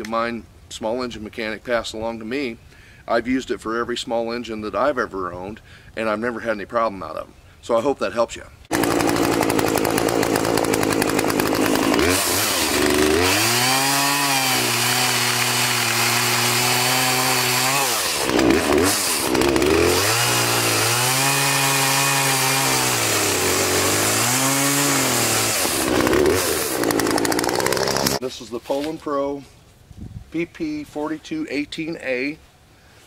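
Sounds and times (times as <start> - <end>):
chainsaw cutting log: 8.7 - 28.2.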